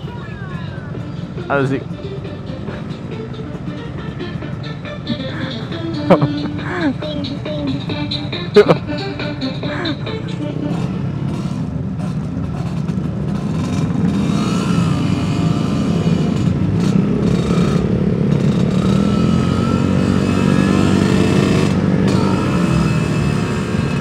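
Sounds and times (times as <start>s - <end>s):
two-stroke motorcycle engine running: 0.9s - 24.0s.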